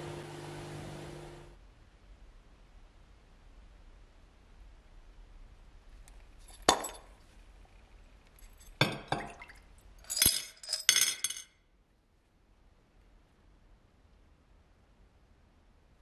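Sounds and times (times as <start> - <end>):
small hard objects clinking: 10.1 - 11.5.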